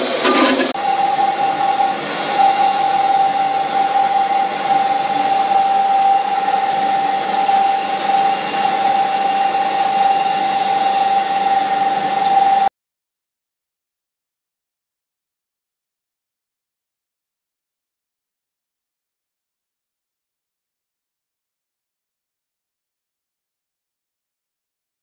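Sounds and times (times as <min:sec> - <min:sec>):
grinding machine whine: 0:00.0 - 0:12.7.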